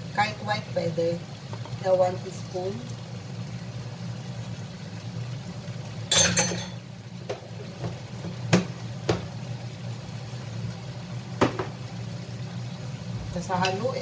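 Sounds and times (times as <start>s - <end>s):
sharp taps on pan: 6.1s - 9.4s, 11.4s - 11.8s.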